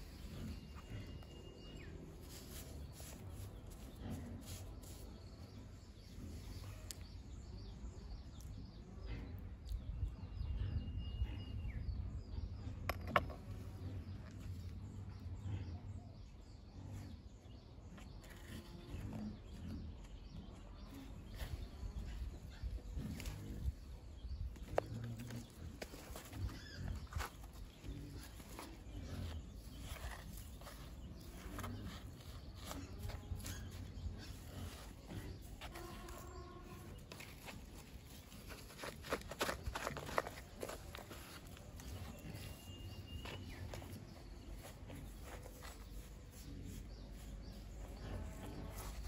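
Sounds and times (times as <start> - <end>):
hands handling gritty soil: 0.0 - 7.1, 18.0 - 49.0.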